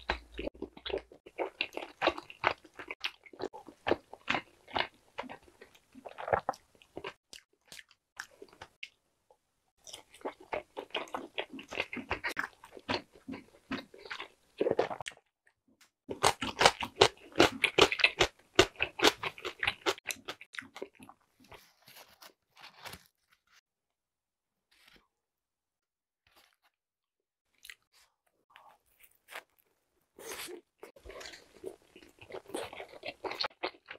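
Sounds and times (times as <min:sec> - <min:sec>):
chewing with wet crunches: 0:00.0 - 0:09.0, 0:09.8 - 0:15.2, 0:16.1 - 0:21.2, 0:30.2 - 0:33.9.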